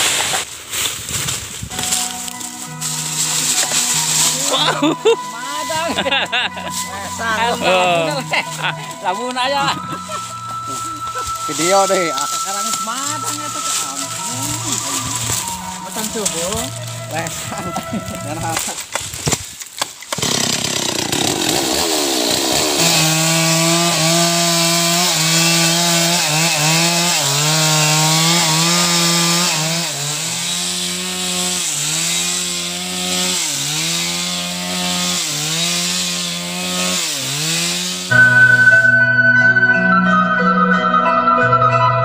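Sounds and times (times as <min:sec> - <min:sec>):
chainsaw cutting log: 0:01.7 - 0:08.6, 0:11.5 - 0:17.2, 0:18.1 - 0:38.9
marimba music: 0:01.7 - 0:18.7, 0:22.8 - 0:37.5, 0:38.1 - 0:42.0.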